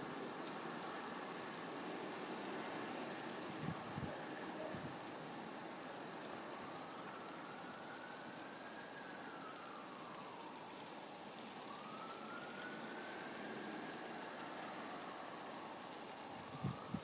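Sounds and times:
rain hissing: 0.0 - 17.0
siren wailing: 6.0 - 17.0.

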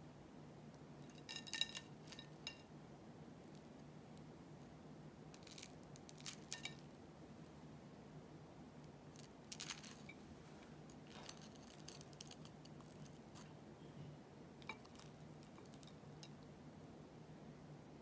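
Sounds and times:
crackles of brittle crust: 5.3 - 7.0, 9.1 - 13.5.

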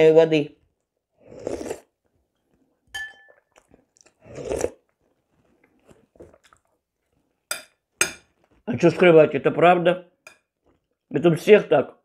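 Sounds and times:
soft chewing: 0.6 - 9.1, 10.4 - 11.1
slurping soup: 1.0 - 7.5
metal spoon clinking on bowl: 2.9 - 3.5, 7.5 - 8.3, 10.2 - 10.5.

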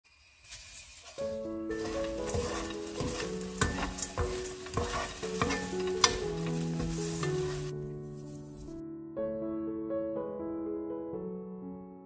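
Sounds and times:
spatula scraping food in wok: 0.1 - 7.7
soft background music: 1.2 - 12.0.

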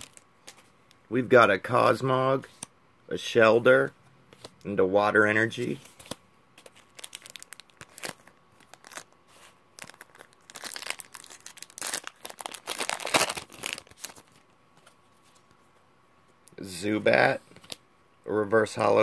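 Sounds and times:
foil wrapper crinkling and tearing: 0.0 - 0.2, 6.6 - 14.4.

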